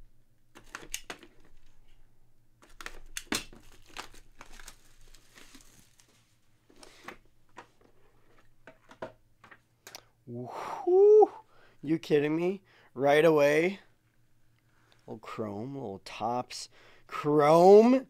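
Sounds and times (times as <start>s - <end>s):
cardboard packaging rustling: 0.5s - 2.0s, 2.6s - 8.6s
seal tearing: 2.6s - 6.0s.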